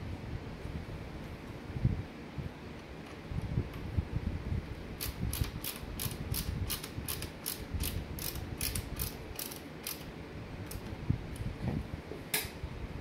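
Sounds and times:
ratcheting screwdriver clicking: 0:05.0 - 0:10.1.

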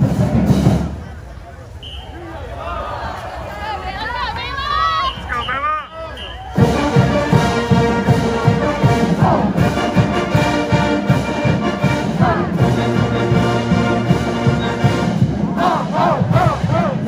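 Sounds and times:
pounding drum beat: 0:00.0 - 0:01.1, 0:06.5 - 0:17.0
brass instruments: 0:00.0 - 0:02.5, 0:04.1 - 0:17.0.

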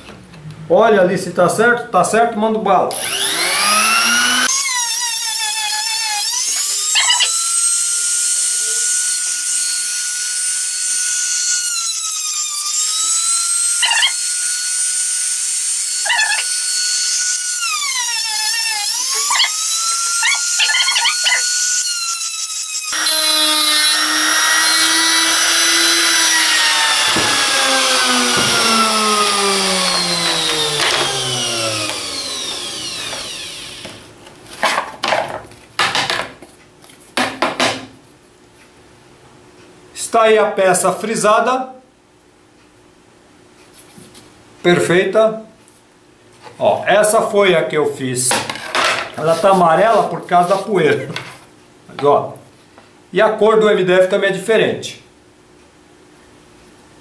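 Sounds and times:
trim router whining: 0:02.9 - 0:34.1
short knocks: 0:27.0 - 0:29.0.

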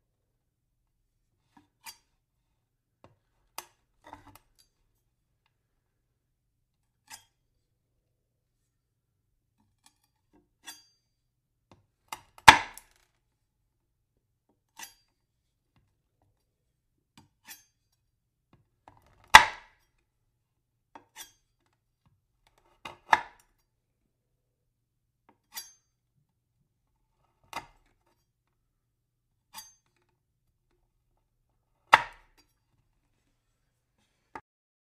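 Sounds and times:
knife chopping onto wood: 0:12.4 - 0:12.9, 0:19.3 - 0:19.7, 0:22.8 - 0:23.4, 0:31.9 - 0:32.3.

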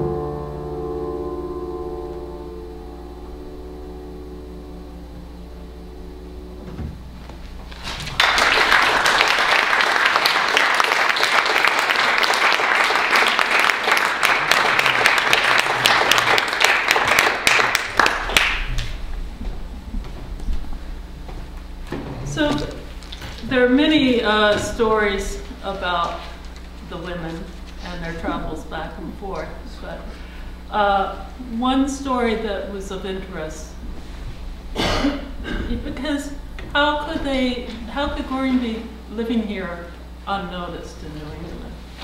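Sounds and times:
piano chord: 0:00.0 - 0:08.6
audience clapping: 0:07.7 - 0:20.1.

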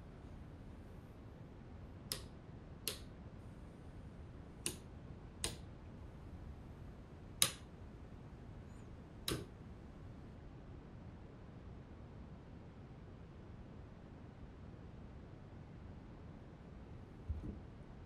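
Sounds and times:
light switch clicks: 0:02.1 - 0:03.1, 0:04.6 - 0:04.8, 0:05.4 - 0:05.6, 0:07.4 - 0:07.7, 0:09.2 - 0:09.5.

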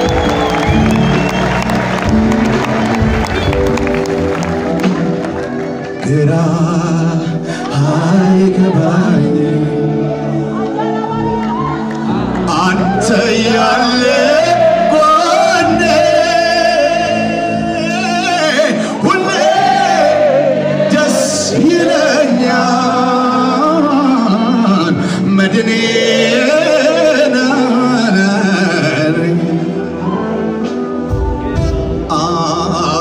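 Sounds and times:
band playing: 0:00.0 - 0:33.0
man singing long held notes: 0:31.3 - 0:33.0.

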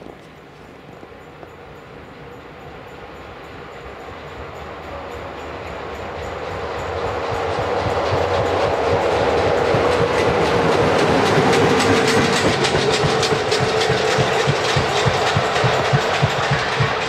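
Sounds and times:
electric locomotives rumbling past: 0:00.0 - 0:17.0
wheels clicking over rail joints: 0:07.0 - 0:17.0.

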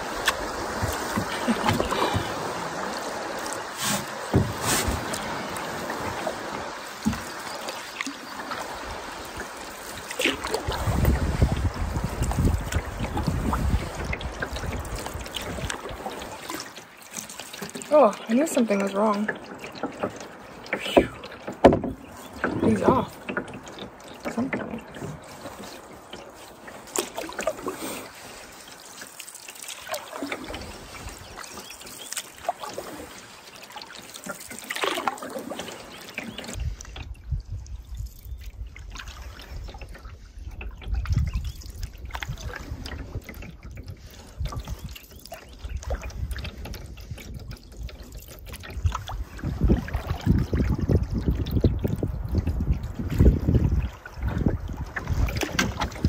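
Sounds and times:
paddle splashing in water: 0:00.0 - 0:56.0
water dripping off paddle: 0:00.0 - 0:56.0
wind buffeting microphone: 0:08.7 - 0:16.3, 0:36.5 - 0:56.0.

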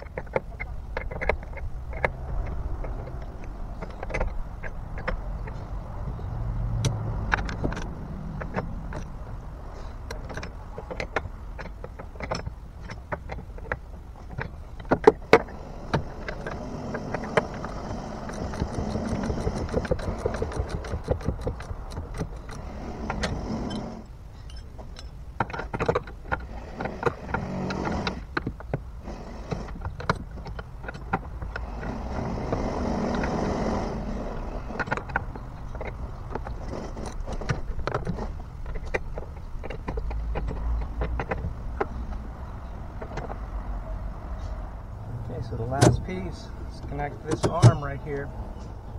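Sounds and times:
ratchet wrench clicking: 0:16.2 - 0:23.9.

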